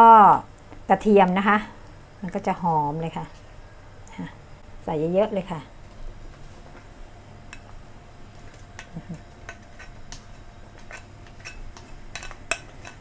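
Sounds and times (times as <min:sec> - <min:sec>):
metal spoon scraping ceramic bowl: 0:10.8 - 0:13.0.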